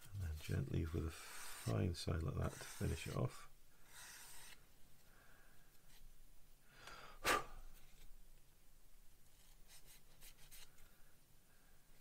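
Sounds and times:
sanding stick scratching plastic: 0.3s - 4.6s.

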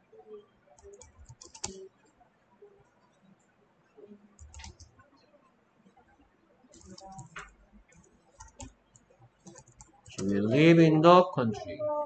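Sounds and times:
faint keyboard typing: 0.3s - 2.2s, 4.0s - 5.2s, 6.7s - 10.6s.

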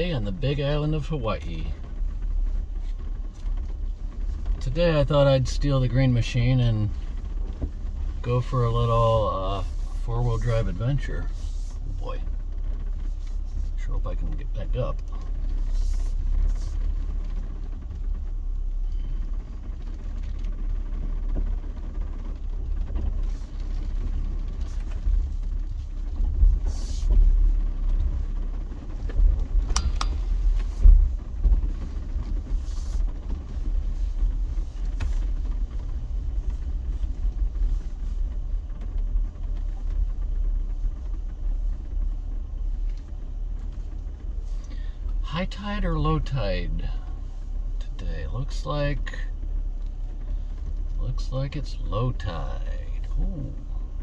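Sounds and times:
car engine low rumble: 0.0s - 54.0s.

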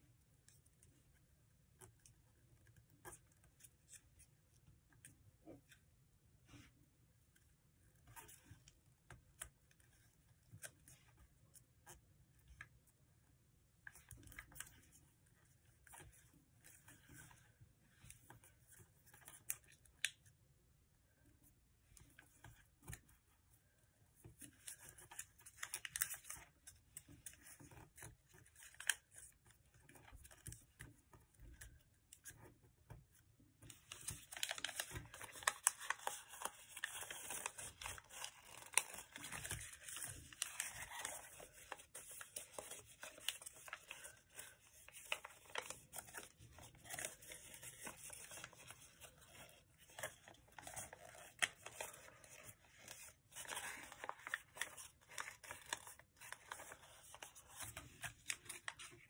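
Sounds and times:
paper crinkling as folded: 24.3s - 31.0s, 33.6s - 59.0s.

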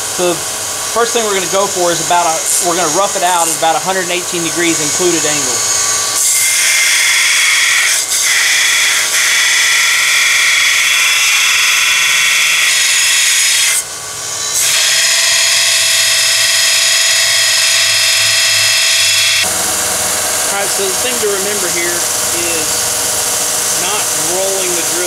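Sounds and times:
motor whine: 0.0s - 7.6s, 13.8s - 25.0s
belt sander grinding metal: 0.0s - 25.0s.

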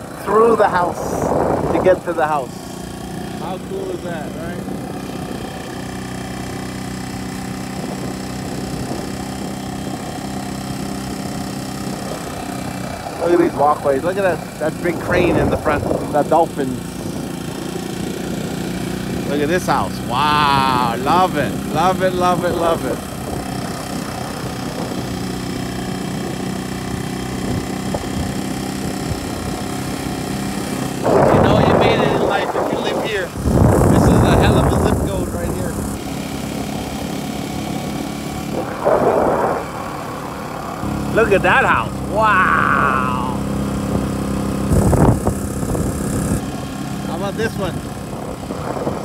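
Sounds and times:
motorcycle engine running: 0.0s - 49.0s.

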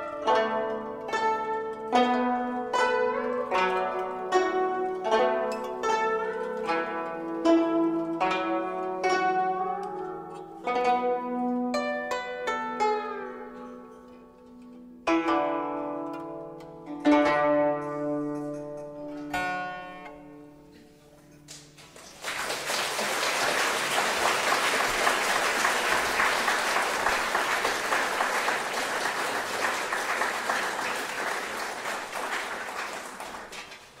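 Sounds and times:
plucked zither chords: 0.0s - 21.7s
audience applauding: 21.5s - 34.0s.

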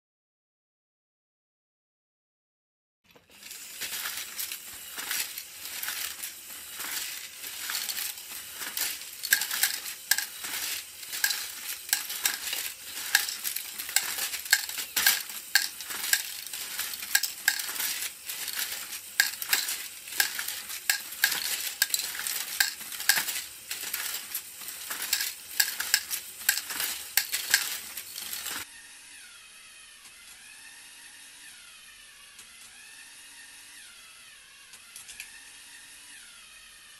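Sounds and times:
plastic parts clattering: 3.1s - 28.6s
machine running with faint whine: 3.4s - 36.9s.

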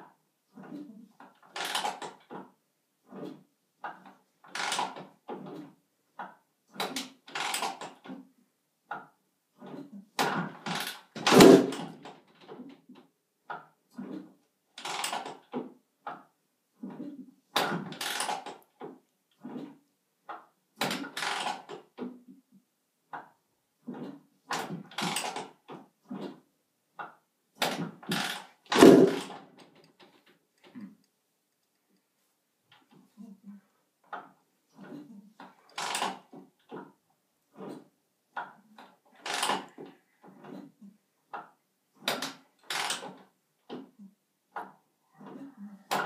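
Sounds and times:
motorcycle being kick-started: 17.6s - 18.6s, 20.8s - 21.8s, 24.6s - 25.6s, 27.7s - 30.1s, 35.7s - 36.2s, 39.2s - 39.8s.

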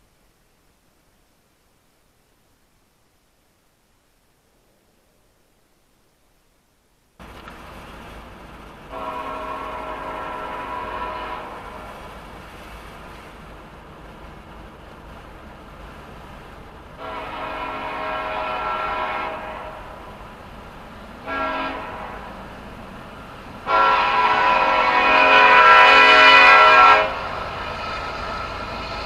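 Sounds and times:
low train rumble: 0.0s - 29.0s
locomotive air horn blasts: 8.9s - 12.0s, 17.0s - 20.2s, 21.2s - 22.5s, 23.6s - 28.4s.

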